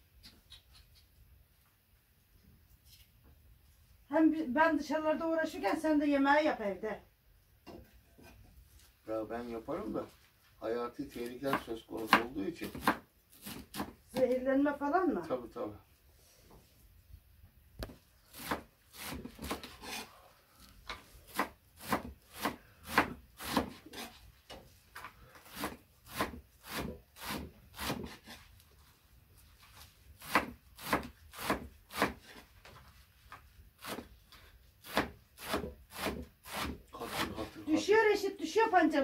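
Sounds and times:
knife cutting on wooden board: 11.5s - 14.0s, 17.8s - 20.1s, 21.3s - 24.2s, 25.4s - 28.5s, 30.2s - 32.5s, 33.8s - 34.2s, 34.8s - 37.5s.

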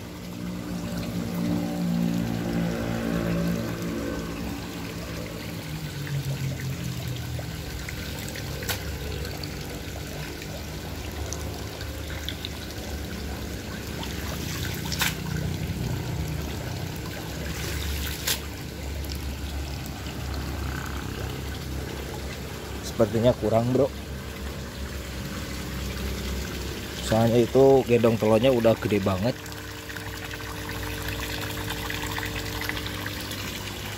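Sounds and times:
low steady hum: 0.0s - 33.9s
water pouring into a pond: 0.0s - 33.9s.

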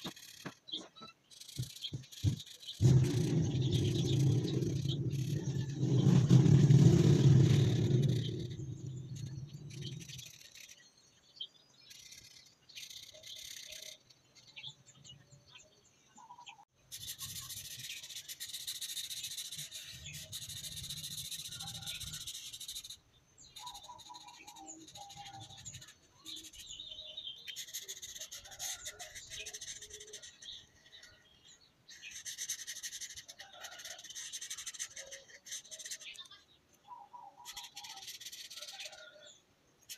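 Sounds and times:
marker scribbling on paper: 16.9s - 23.0s, 27.5s - 30.5s, 31.9s - 36.3s, 37.4s - 38.9s.

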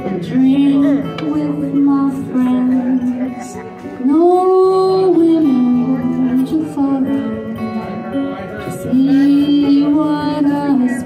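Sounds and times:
acoustic guitar: 0.0s - 11.0s
woman singing folk song: 0.0s - 11.0s.

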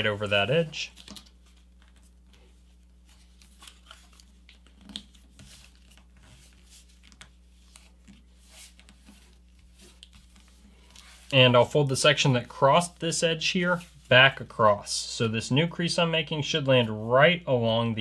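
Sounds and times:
paper being folded: 0.0s - 14.6s
low steady hum: 0.0s - 18.0s
paper crinkling: 0.1s - 11.5s.

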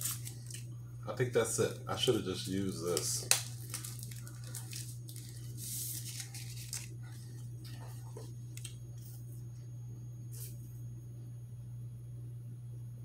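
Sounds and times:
paper wrapper crinkling and tearing: 0.0s - 0.7s, 1.6s - 8.8s.

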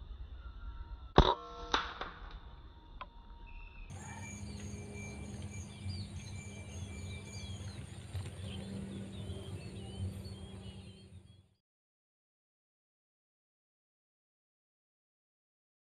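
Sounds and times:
low hum: 0.0s - 11.5s
high-pitched insect whine: 3.5s - 9.8s
small birds chirping: 3.5s - 11.6s.

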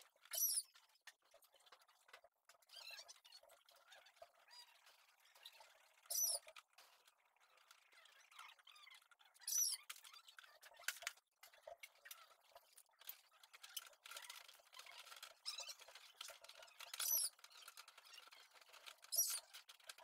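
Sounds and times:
short high squeaks: 5.4s - 6.5s.

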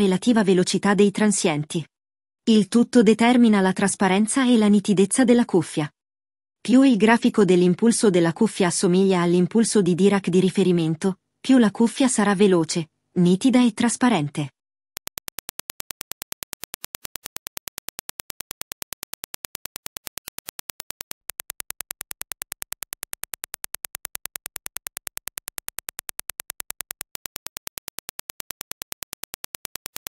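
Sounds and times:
impulse clicks: 15.0s - 30.0s.

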